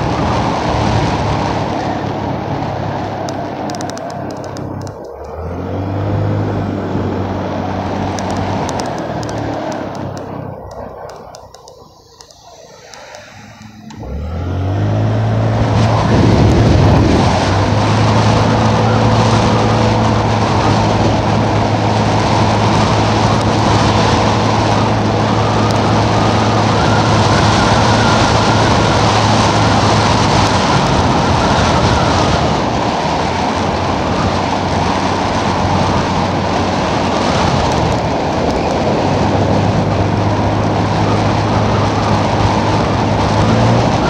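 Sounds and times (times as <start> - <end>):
gasoline engine running: 0.0 - 44.0
wind and road noise on microphone: 0.0 - 44.0.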